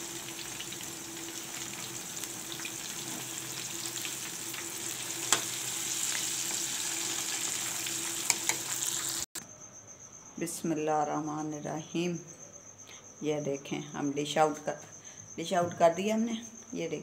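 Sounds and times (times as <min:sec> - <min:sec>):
food sizzling in hot oil: 0:00.0 - 0:09.4.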